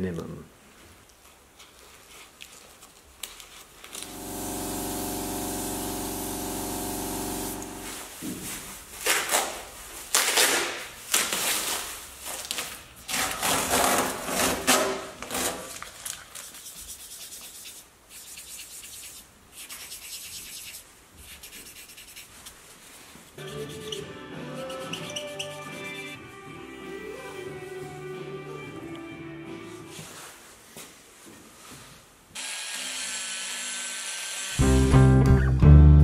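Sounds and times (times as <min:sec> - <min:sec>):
machine humming: 0:04.0 - 0:08.1
pad rubbing on steel panel: 0:24.6 - 0:25.8.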